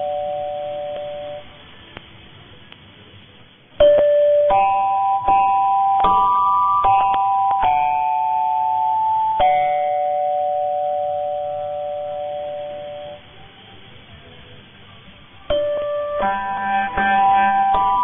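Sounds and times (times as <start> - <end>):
faint radio receiver hiss: 0.0 - 18.0
keyboard chords on am radio: 15.5 - 18.0.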